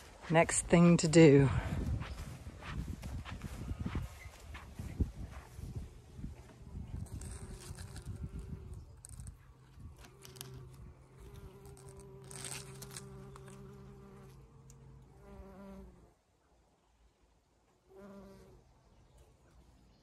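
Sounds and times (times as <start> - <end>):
faint rustles: 1.6 - 15.4
bee buzzing: 5.9 - 16.2, 17.9 - 18.6.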